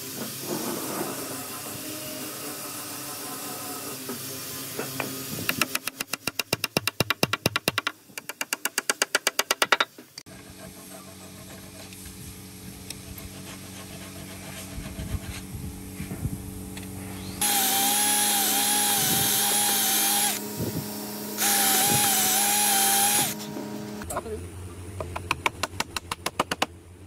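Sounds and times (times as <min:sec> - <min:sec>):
hand saw cutting wood: 0:17.4 - 0:20.5, 0:21.4 - 0:23.5
cordless drill whining: 0:17.4 - 0:20.8, 0:21.4 - 0:23.4.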